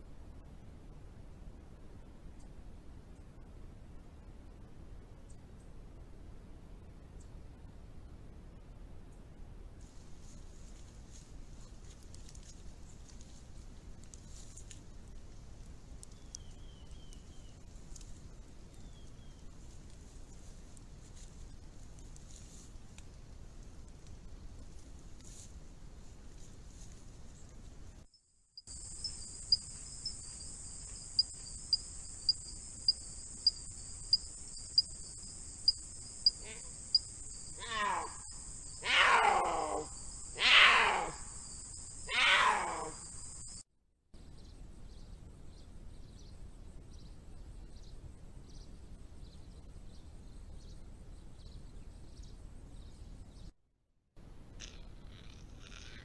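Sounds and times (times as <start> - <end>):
regular ticking: 28.6 - 37.6
high-pitched night chorus: 28.6 - 43.6
puma yowling: 36.2 - 41.4, 42.1 - 43.2.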